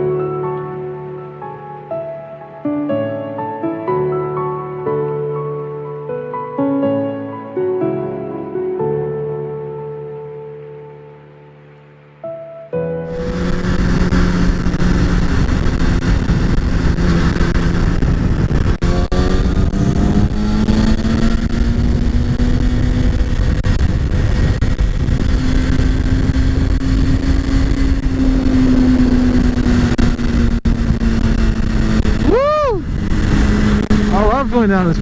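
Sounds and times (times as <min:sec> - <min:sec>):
motorcycle engine accelerating: 0:13.0 - 0:35.0
wind rush: 0:13.0 - 0:35.0.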